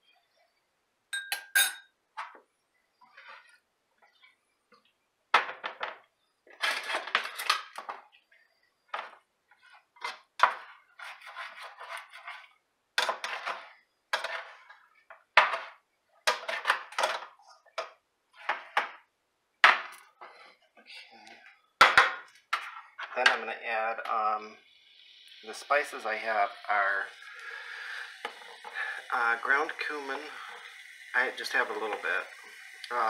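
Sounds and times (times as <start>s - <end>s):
spoon scraping metal pot: 10.0s - 14.8s.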